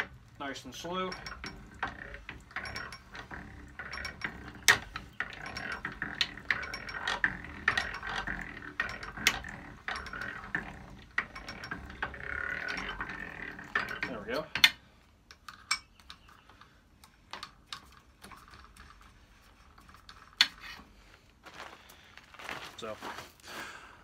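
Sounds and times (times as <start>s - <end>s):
drill gears clicking and rattling: 0.0s - 21.0s
drill bit scraping metal: 0.7s - 14.7s.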